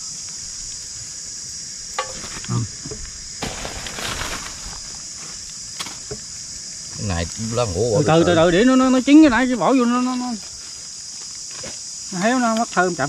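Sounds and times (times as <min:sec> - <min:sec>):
high-pitched insect drone: 0:00.0 - 0:13.0
rustling: 0:03.4 - 0:05.5.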